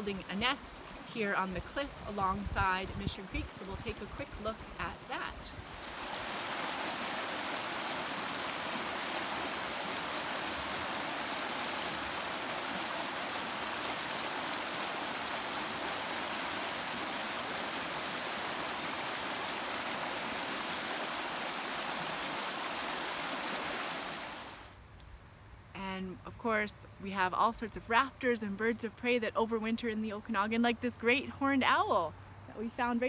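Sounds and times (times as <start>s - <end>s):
creek water rushing: 0.0s - 24.8s.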